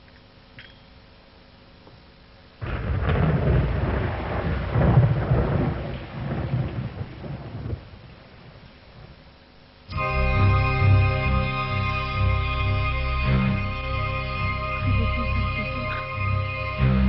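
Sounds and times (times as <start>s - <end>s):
thunder clap and rumble: 2.6s - 8.6s.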